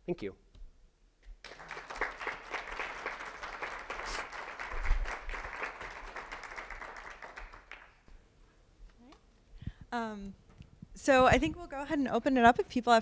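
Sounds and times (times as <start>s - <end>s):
audience applauding: 1.4s - 8.1s.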